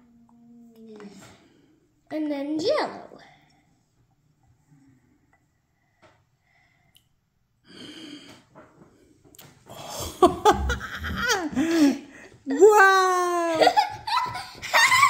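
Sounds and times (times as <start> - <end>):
excited laughing voices: 9.9 - 12.0, 12.7 - 15.0.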